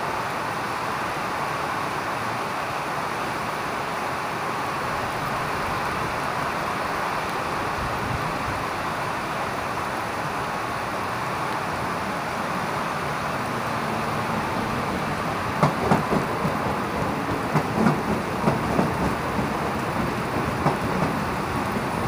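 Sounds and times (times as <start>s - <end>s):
heavy rain: 0.0s - 22.0s
electric train humming past: 4.8s - 22.0s
train wheels knocking: 14.0s - 22.0s.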